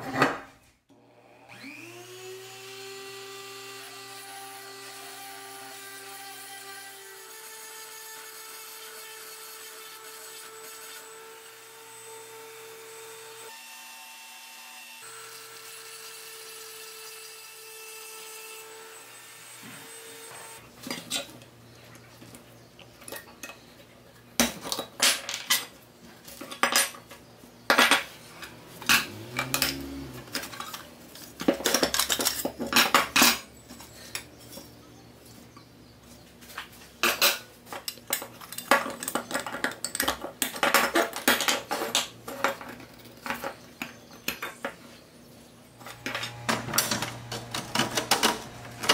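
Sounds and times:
rotary tool grinding metal: 28.3s - 31.3s.

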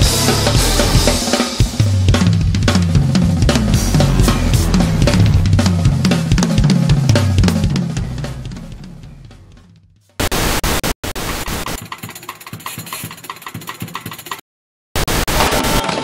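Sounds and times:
drum kit playing: 0.0s - 14.4s
low sustained bass: 3.5s - 6.0s.

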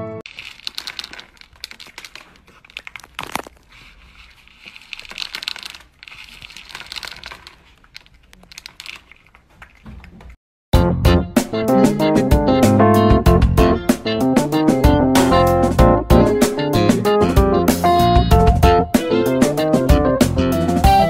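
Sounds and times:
kibble rattling in plastic bowl: 0.3s - 9.8s
guitar music: 10.8s - 21.0s.

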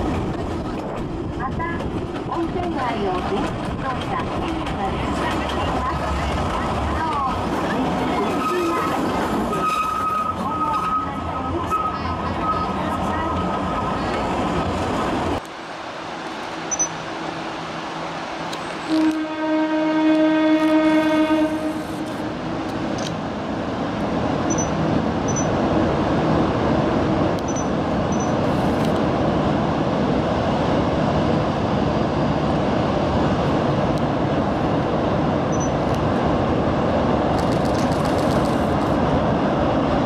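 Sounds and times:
train wheels rumbling on bridge: 0.0s - 15.4s, 16.0s - 40.0s
train horn blast: 18.8s - 22.0s.

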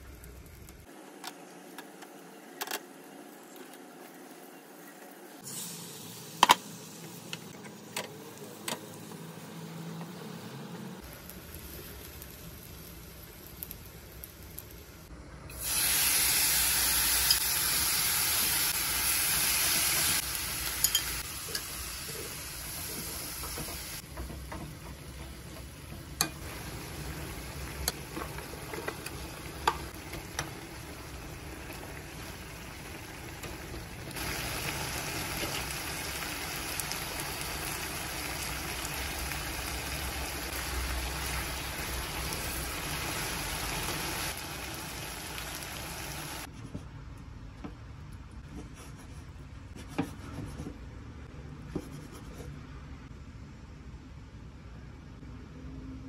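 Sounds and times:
meat sizzling in a wok: 5.4s - 7.4s, 11.0s - 15.0s, 15.6s - 46.5s.

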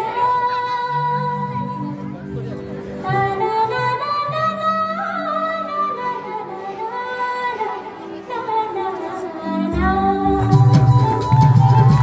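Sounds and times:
instrumental backing: 0.0s - 12.0s
woman singing folk song: 0.0s - 12.0s.

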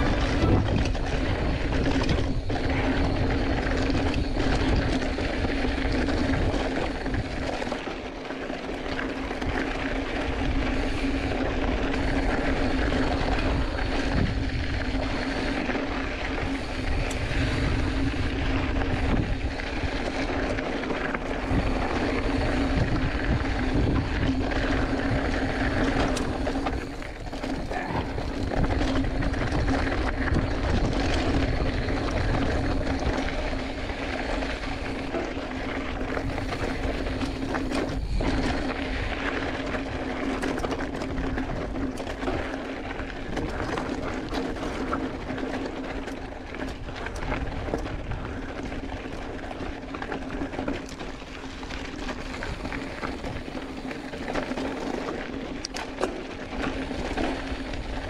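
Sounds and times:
wind rush on microphone: 0.0s - 8.1s, 8.8s - 58.0s
bike tyres rolling over rocky trail: 0.0s - 58.0s
constant low hum: 0.0s - 58.0s.

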